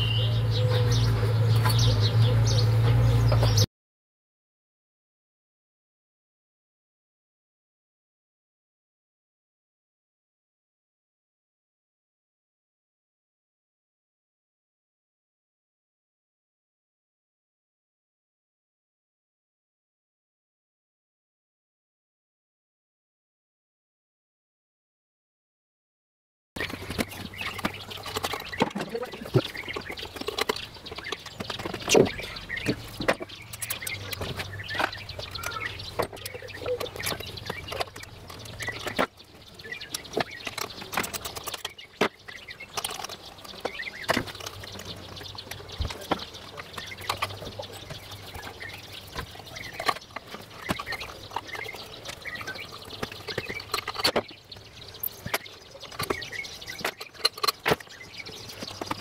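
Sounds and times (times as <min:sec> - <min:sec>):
birds chirping: 0:00.0 - 0:03.7, 0:26.6 - 0:59.0.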